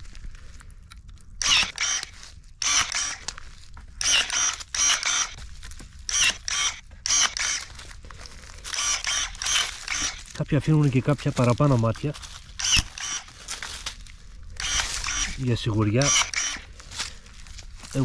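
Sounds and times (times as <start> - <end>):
electric shears whirring snips: 1.4 - 3.4, 4.0 - 5.4, 6.0 - 7.8, 8.6 - 10.4, 12.5 - 13.7, 14.6 - 16.8.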